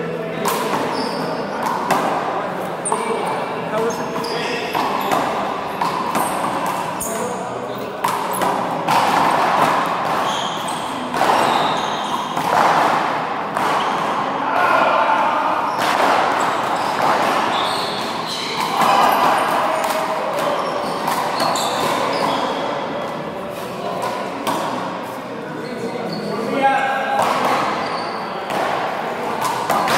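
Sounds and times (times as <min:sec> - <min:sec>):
handball hitting wall and floor: 0:00.4 - 0:03.4, 0:04.0 - 0:07.3, 0:07.9 - 0:14.9, 0:15.7 - 0:22.8, 0:27.1 - 0:29.9.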